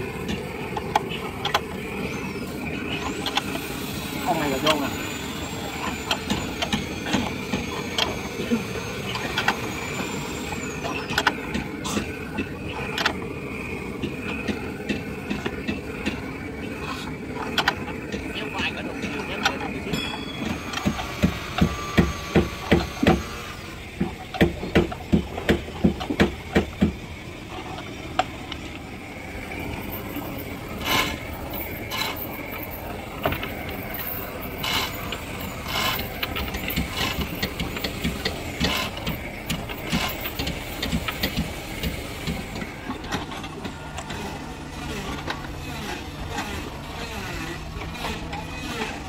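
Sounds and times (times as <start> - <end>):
low steady hum: 0.0 - 49.0
hammering on wood: 24.4 - 27.0.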